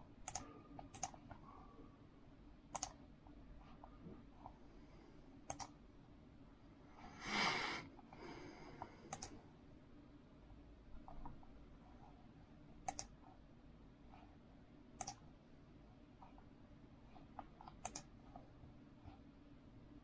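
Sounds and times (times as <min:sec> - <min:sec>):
computer mouse clicks: 0:00.2 - 0:01.4, 0:02.7 - 0:03.0, 0:05.4 - 0:05.8, 0:08.8 - 0:09.4, 0:12.8 - 0:13.3, 0:15.0 - 0:15.3, 0:17.2 - 0:18.5.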